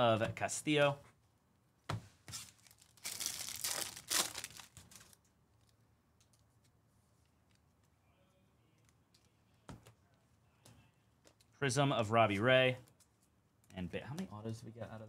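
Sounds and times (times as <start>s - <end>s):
foil wrapper tearing and crinkling: 2.5s - 5.2s.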